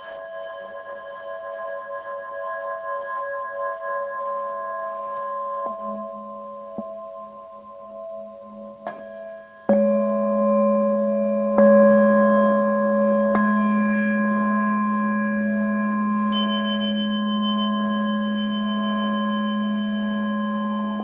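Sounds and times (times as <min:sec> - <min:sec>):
singing bowls ringing: 0:00.0 - 0:21.0
higher ringing tone: 0:08.9 - 0:21.0.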